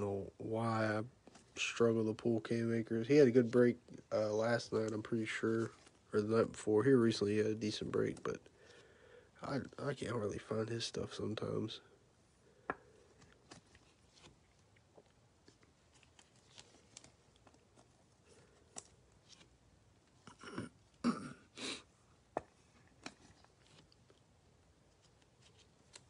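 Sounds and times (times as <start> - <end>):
plastic crinkling: 13.0 - 20.2.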